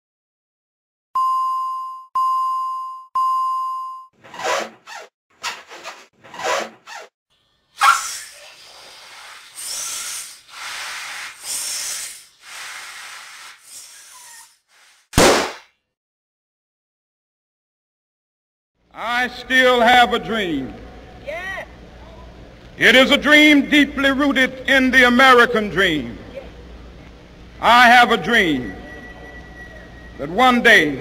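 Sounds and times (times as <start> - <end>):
short noisy bursts: 7.8 - 15.0
electronic beeps: 28.5 - 30.3.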